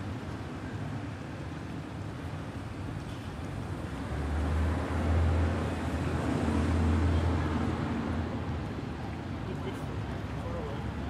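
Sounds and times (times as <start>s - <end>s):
heavy street traffic: 0.0s - 11.0s.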